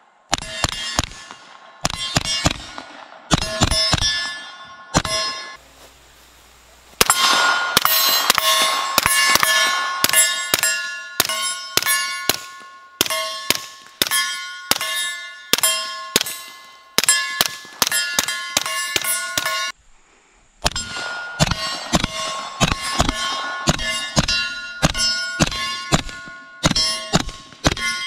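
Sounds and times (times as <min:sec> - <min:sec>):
metallic ring of steel target: 0:00.3 - 0:05.6, 0:07.0 - 0:19.8, 0:20.6 - 0:28.0
suppressed pistol shots: 0:07.0 - 0:10.6.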